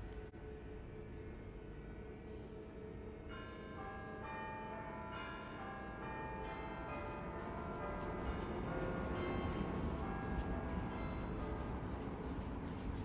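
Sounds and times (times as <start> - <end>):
church bells ringing: 3.3 - 11.8.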